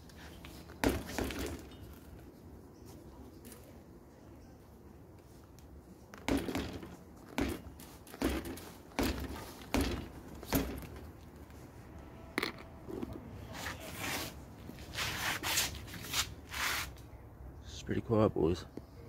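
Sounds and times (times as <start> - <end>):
bike bouncing on concrete: 0.0 - 2.4, 6.1 - 11.6.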